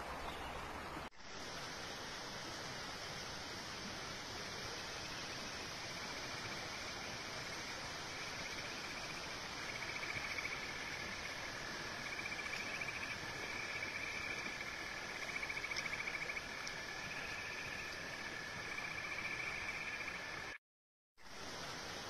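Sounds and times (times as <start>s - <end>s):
stream running over stones: 0.0s - 20.6s, 21.2s - 22.0s
insects trilling: 5.0s - 20.6s.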